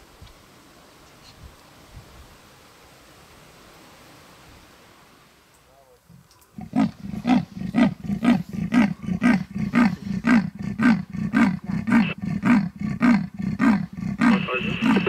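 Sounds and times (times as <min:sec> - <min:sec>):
leopard rasping sawing call: 0:06.6 - 0:15.0.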